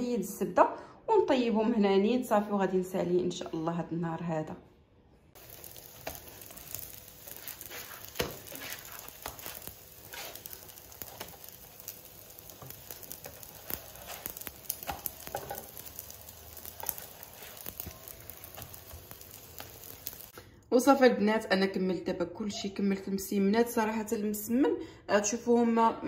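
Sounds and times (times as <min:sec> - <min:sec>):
flatbreads sizzling in oil: 0:05.3 - 0:20.4
spatula knocking on griddle: 0:07.6 - 0:10.5.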